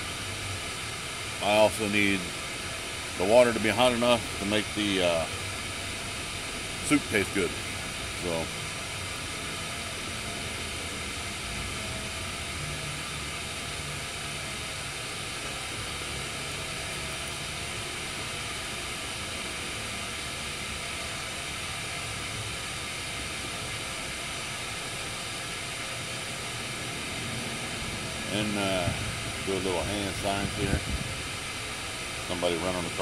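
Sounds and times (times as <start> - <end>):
gas stove hissing: 0.0 - 33.0
wind rumbling: 30.3 - 31.4.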